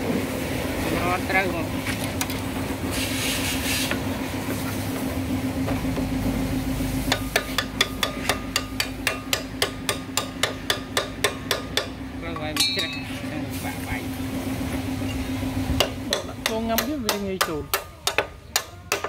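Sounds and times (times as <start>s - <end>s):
steady low hum: 0.0s - 19.0s
hammer tapping metal: 7.1s - 13.3s, 15.8s - 19.0s.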